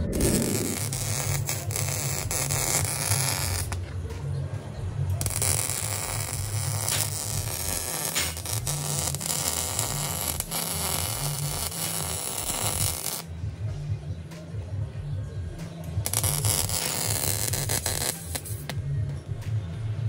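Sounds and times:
welder arc crackling: 0.0s - 3.8s, 5.2s - 13.3s, 16.0s - 18.8s.

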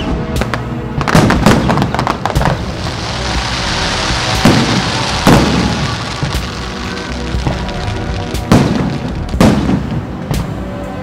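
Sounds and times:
firework shells bursting: 1.1s - 9.8s
firework crackling hiss: 1.3s - 9.9s.

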